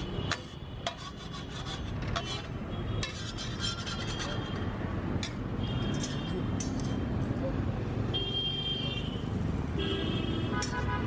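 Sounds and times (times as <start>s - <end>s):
spatula scraping griddle: 0.8s - 4.4s.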